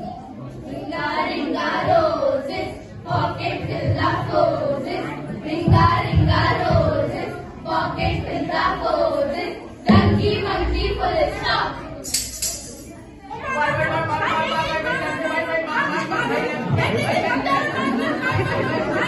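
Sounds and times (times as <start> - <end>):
young voices singing in unison: 0.0 - 12.2
low thuds: 9.9 - 12.0.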